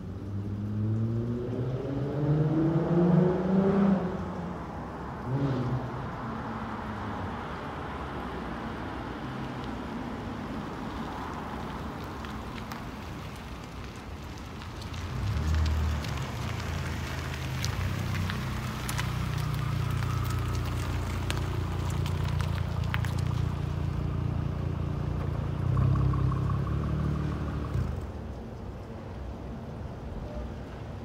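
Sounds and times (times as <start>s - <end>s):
car passing with deep exhaust: 14.8s - 28.4s.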